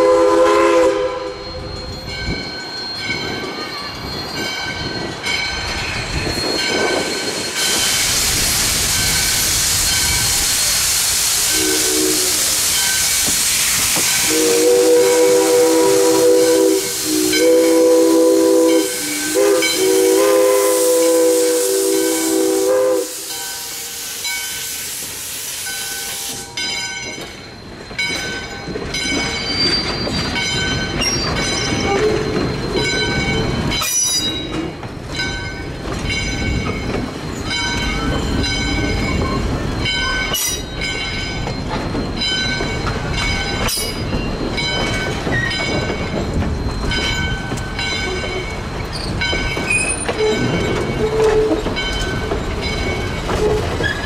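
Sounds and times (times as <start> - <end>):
locomotive bell ringing: 0.0 - 8.1, 11.5 - 20.4, 25.6 - 54.0
train rumbling past: 0.0 - 54.0
steam hissing: 6.8 - 26.7.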